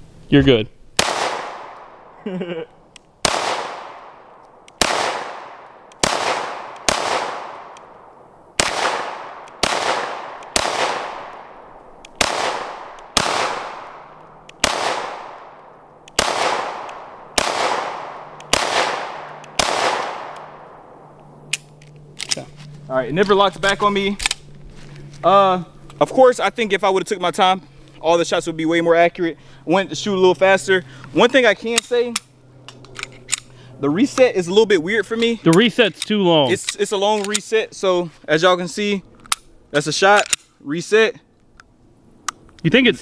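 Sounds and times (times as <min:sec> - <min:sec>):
pistol shots echoing: 0:01.0 - 0:02.2, 0:03.2 - 0:21.8.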